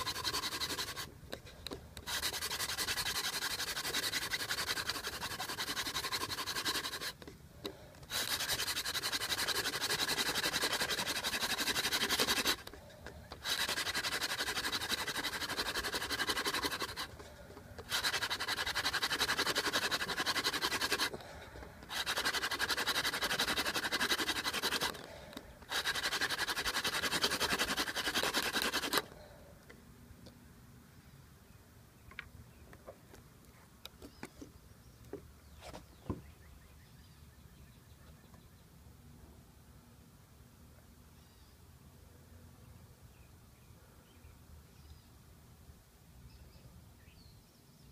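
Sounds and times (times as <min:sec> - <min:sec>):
dry wooden rubbing of hand drill: 0:00.0 - 0:07.3, 0:08.0 - 0:29.2.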